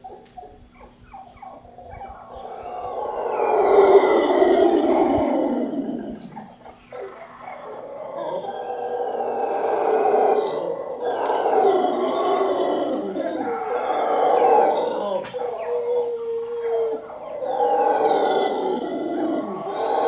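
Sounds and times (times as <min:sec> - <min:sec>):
howler monkeys howling: 0:00.0 - 0:20.0.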